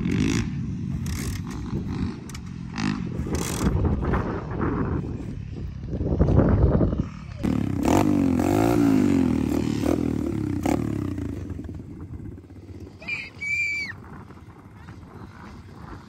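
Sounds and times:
dirt bike engine revving: 0.0s - 5.0s, 6.7s - 13.0s.

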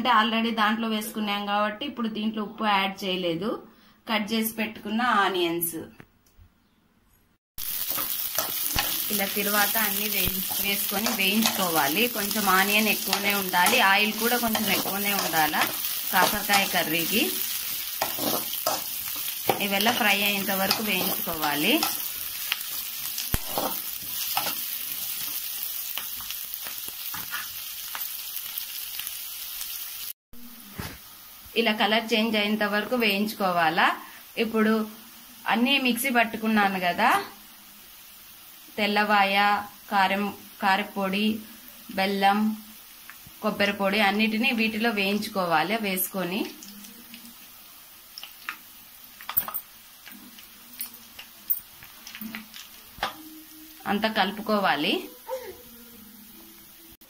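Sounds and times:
onions sizzling in oil: 7.6s - 57.0s
steel ladle scraping a pan: 10.4s - 24.8s.

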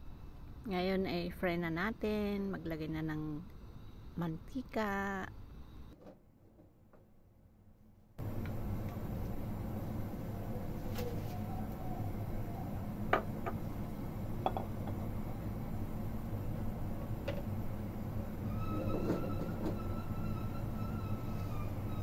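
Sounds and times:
steady low hum: 0.0s - 6.0s, 8.2s - 22.0s.

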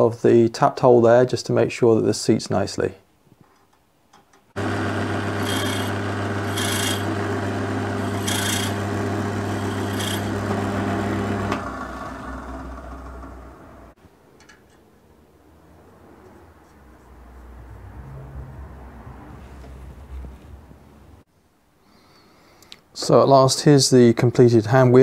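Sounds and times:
drill bit cutting metal: 4.6s - 11.7s
pillar drill motor humming: 4.6s - 13.9s.

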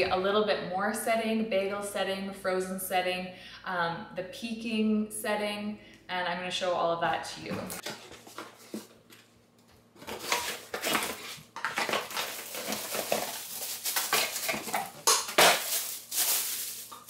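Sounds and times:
cardboard and plastic bag rustling: 7.8s - 17.0s.

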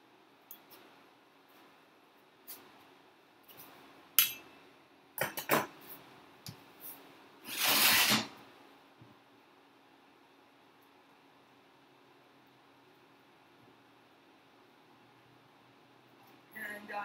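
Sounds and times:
brief rushing scrape: 7.5s - 8.3s.

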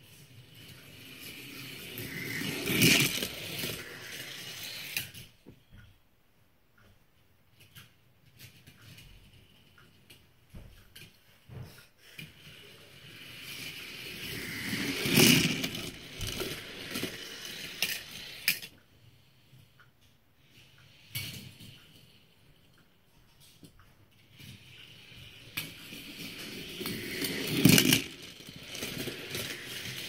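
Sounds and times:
toy car rattling on plastic track: 0.0s - 5.3s, 12.0s - 18.8s, 23.4s - 30.0s.

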